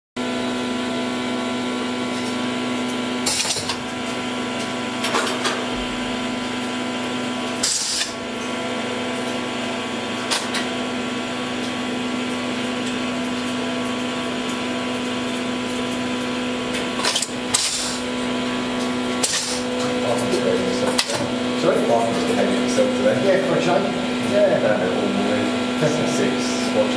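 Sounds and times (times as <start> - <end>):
low electrical hum: 0.4 - 26.9
machine levers air hiss and clunk: 7.6 - 8.2, 17.0 - 18.0, 19.2 - 19.6.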